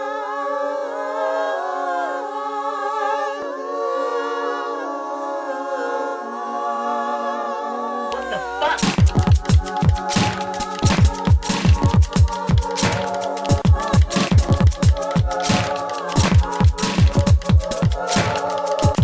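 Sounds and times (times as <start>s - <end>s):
wordless hummed vocal tones: 0.0s - 19.0s
electronic beat with heavy bass: 8.2s - 19.0s.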